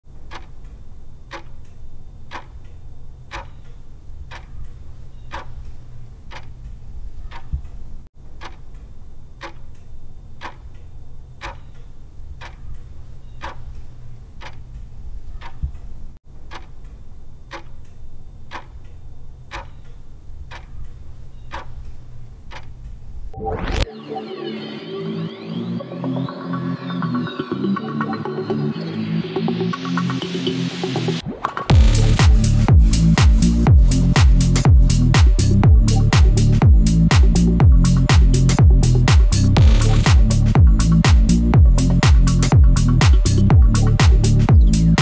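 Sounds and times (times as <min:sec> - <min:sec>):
clock-like ticking: 0:00.1 - 0:23.0, 0:31.7 - 0:45.0
low rumble: 0:31.7 - 0:45.0.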